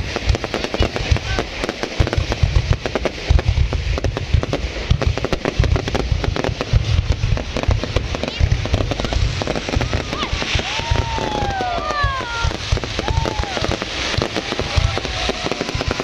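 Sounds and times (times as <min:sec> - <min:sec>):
fireworks bangs and crackles: 0:00.0 - 0:16.0
deep thuds: 0:02.0 - 0:11.2.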